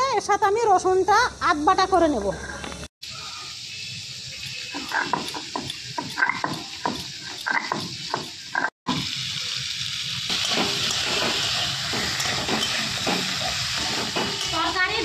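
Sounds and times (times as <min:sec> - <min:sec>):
vegetables sizzling in oil: 0:00.0 - 0:15.0
spatula stirring in wok: 0:10.3 - 0:15.0.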